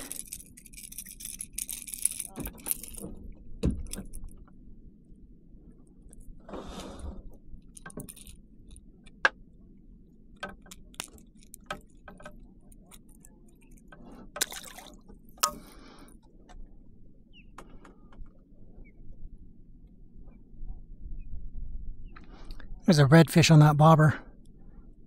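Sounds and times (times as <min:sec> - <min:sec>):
lure clicks and rattles: 0:00.0 - 0:04.6, 0:07.6 - 0:16.6
fish splashing into water: 0:14.4 - 0:15.0.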